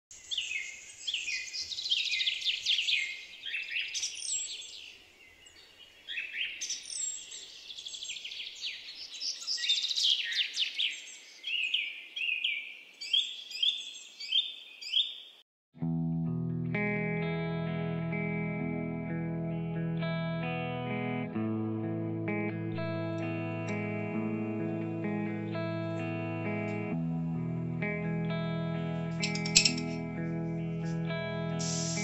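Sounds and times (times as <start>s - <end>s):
birds chirping and twittering: 0.1s - 15.4s, 28.9s - 32.0s.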